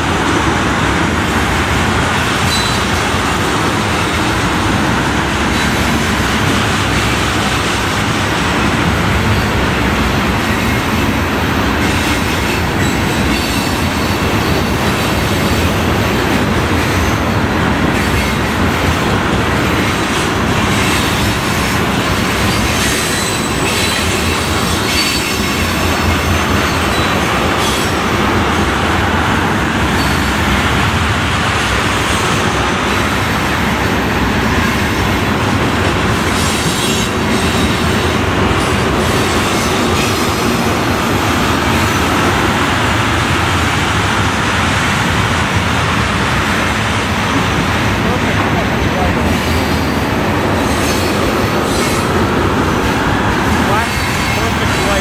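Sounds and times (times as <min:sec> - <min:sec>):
steel wheels on rail: 0:00.0 - 0:55.0
high wheel squeal: 0:02.4 - 0:03.0, 0:22.2 - 0:28.0, 0:29.9 - 0:30.4, 0:50.6 - 0:52.2.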